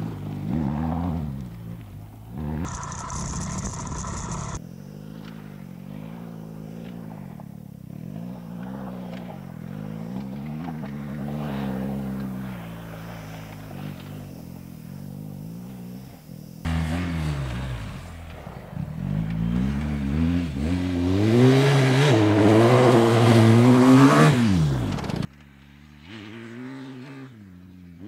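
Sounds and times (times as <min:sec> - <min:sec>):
motorcycle engine revving: 0:00.0 - 0:28.0
hiss: 0:02.6 - 0:04.6.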